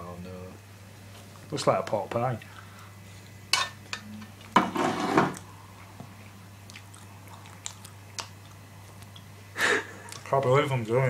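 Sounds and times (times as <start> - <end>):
spoon scraping food: 3.6 - 5.4
wet chewing clicks: 5.8 - 9.4.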